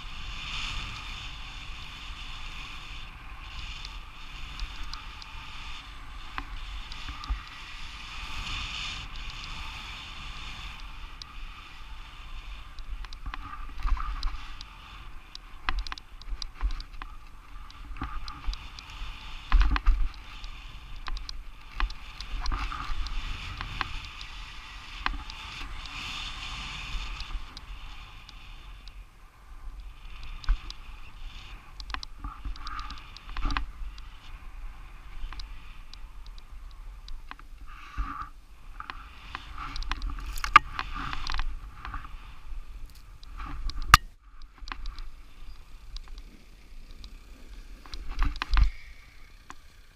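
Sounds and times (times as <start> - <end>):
skis hissing through snow: 0.0 - 12.7, 22.0 - 28.8
wind rumble on microphone: 0.0 - 49.9.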